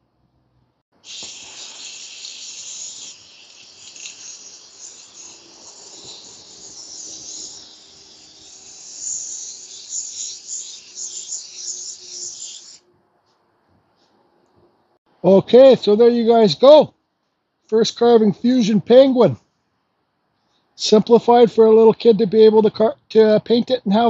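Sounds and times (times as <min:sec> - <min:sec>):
aerosol spray can hissing: 0:01.0 - 0:12.8.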